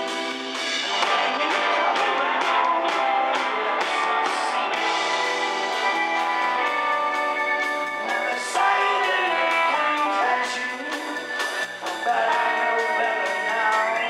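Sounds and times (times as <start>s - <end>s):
bass guitar: 0.0s - 14.0s
drums: 0.0s - 14.0s
electric guitar: 0.0s - 14.0s.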